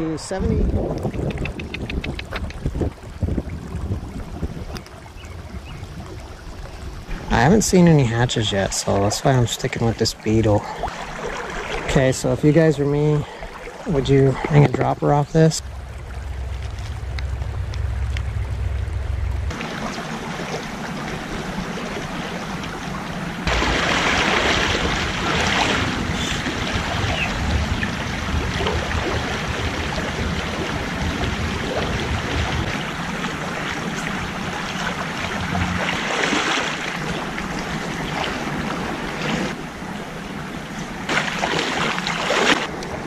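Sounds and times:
creek water running over stones: 0.2s - 18.8s
low rumble: 13.4s - 36.3s.

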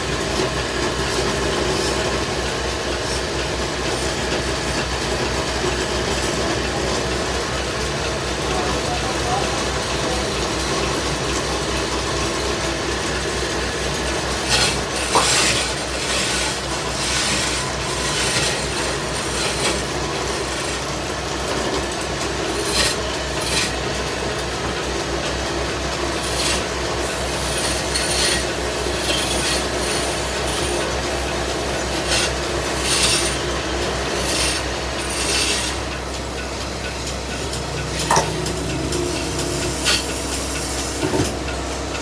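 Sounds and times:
lathe motor hum: 0.0s - 42.0s
stick rubbing on turning wood: 14.3s - 20.9s, 22.5s - 23.8s, 27.3s - 30.9s, 32.0s - 33.4s.

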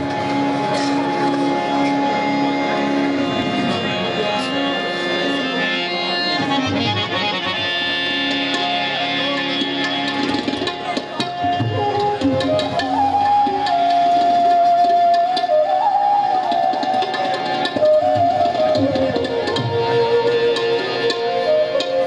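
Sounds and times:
harmonium chords: 0.0s - 14.7s
tabla drumming: 0.0s - 22.0s
bamboo flute: 10.8s - 22.0s.

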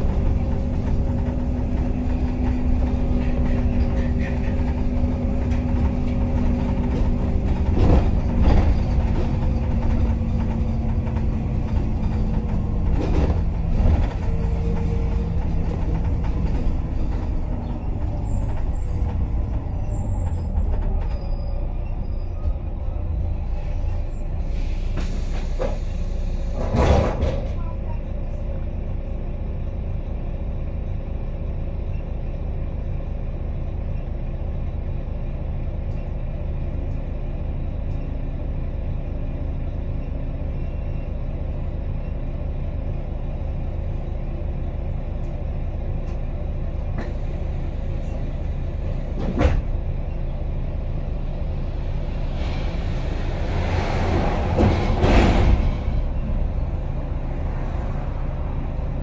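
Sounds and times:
diesel bus engine idling: 0.0s - 26.7s, 27.5s - 59.0s.

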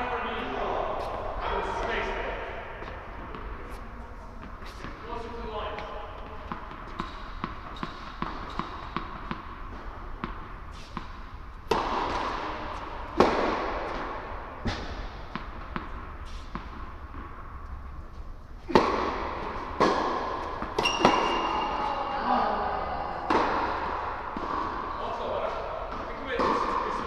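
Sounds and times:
racket hitting tennis ball: 0.3s - 3.8s, 4.4s - 21.9s, 23.2s - 27.0s
tennis ball bouncing on hard court: 2.8s - 3.8s, 5.7s - 21.8s, 23.3s - 24.9s, 25.8s - 27.0s.

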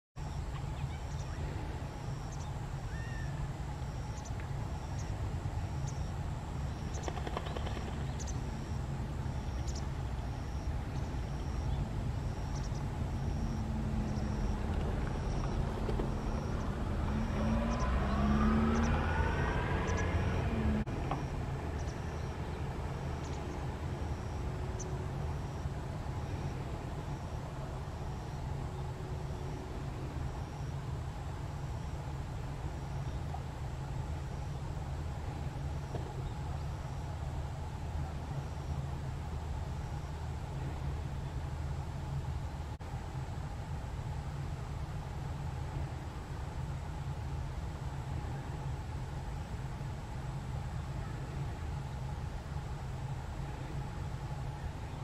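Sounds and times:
distant road traffic rumble: 0.2s - 55.0s
vehicle engine rising in pitch: 7.7s - 34.6s.

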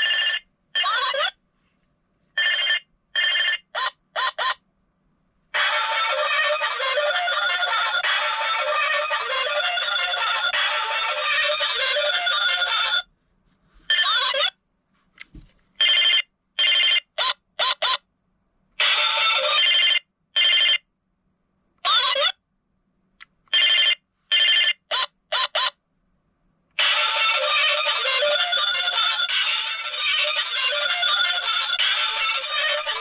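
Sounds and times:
toy phone electronic song: 5.6s - 13.0s, 26.8s - 33.0s.

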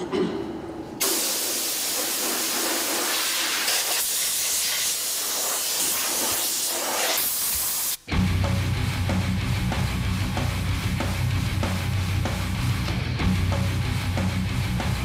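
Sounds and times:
compressed air blow gun hissing: 1.0s - 8.0s.

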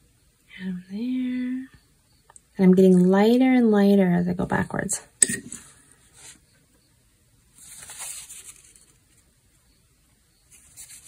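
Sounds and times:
paintbrush stroking paper: 6.1s - 6.4s, 7.6s - 9.3s, 10.5s - 11.0s.

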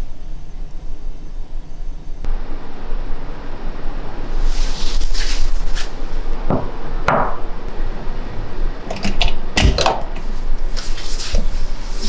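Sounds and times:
door latch clicks: 8.9s - 10.2s
heavy door thud: 8.9s - 10.2s.

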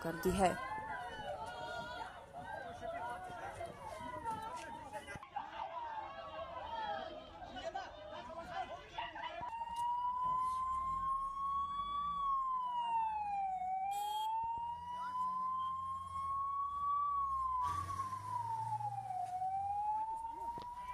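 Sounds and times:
ambulance siren wailing: 9.0s - 20.9s.

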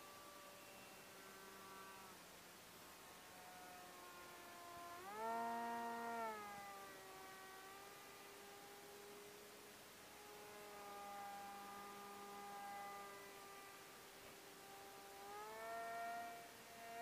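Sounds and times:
model jet motor whine: 0.0s - 17.0s.

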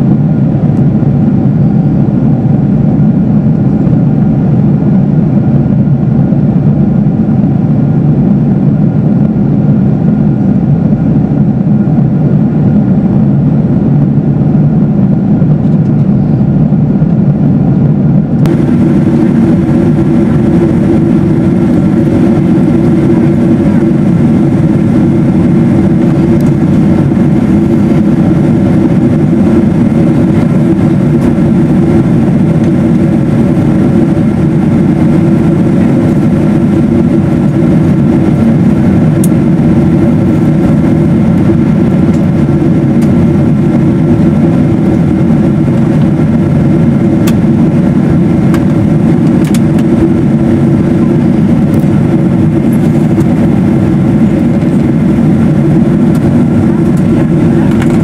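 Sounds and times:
airflow rushing in cabin: 0.0s - 58.0s
jet engines humming: 0.0s - 58.0s.

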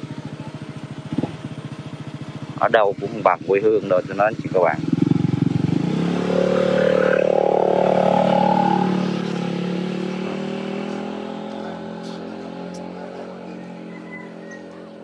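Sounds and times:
motorbike engine passing by: 4.8s - 11.4s.

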